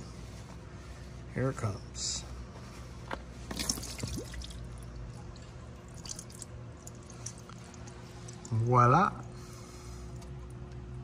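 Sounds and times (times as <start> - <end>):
oil running and dripping: 3.4 - 11.0
oil filter coming off wet squish: 3.5 - 8.6.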